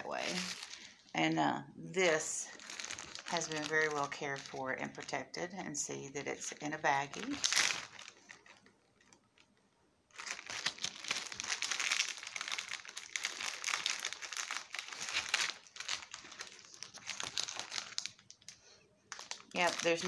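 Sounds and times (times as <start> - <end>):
plastic bag crinkling: 0.0 - 1.4, 2.0 - 20.0.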